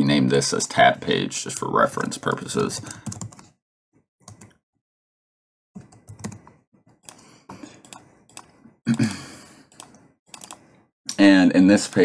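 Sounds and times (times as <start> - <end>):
keyboard typing: 2.8 - 3.5, 4.2 - 4.6, 5.8 - 10.8.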